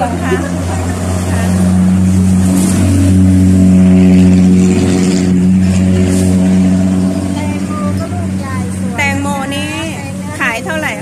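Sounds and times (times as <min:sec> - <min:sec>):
vehicle engine revving: 0:00.0 - 0:11.0.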